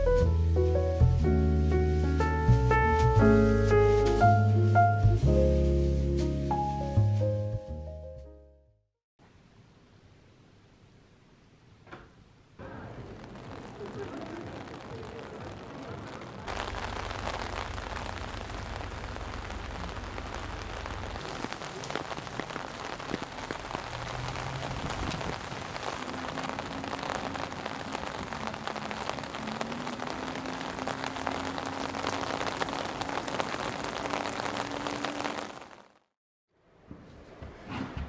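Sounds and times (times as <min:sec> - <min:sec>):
rain on a paved street: 0:00.0 - 0:07.0, 0:09.2 - 0:36.2
low rumble: 0:12.8 - 0:29.6.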